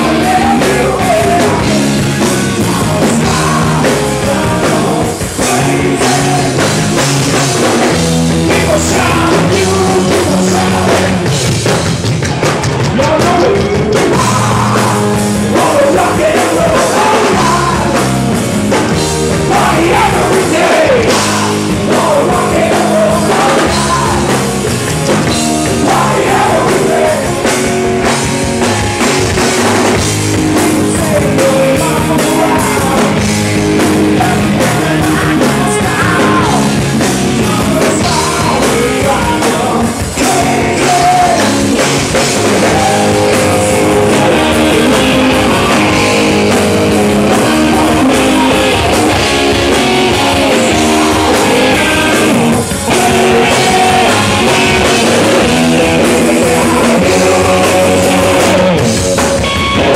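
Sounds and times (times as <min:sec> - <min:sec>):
man singing into a microphone: 0:00.0 - 0:11.4, 0:12.8 - 0:18.2, 0:19.4 - 0:24.5, 0:25.6 - 0:27.5, 0:30.6 - 0:49.5, 0:50.1 - 0:59.2
live rock band playing: 0:00.0 - 0:59.9.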